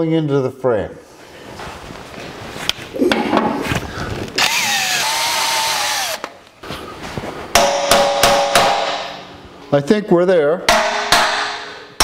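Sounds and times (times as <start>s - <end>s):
drill bit squealing in metal: 4.4s - 6.2s
hammer striking steel: 7.5s - 9.3s, 10.7s - 12.0s.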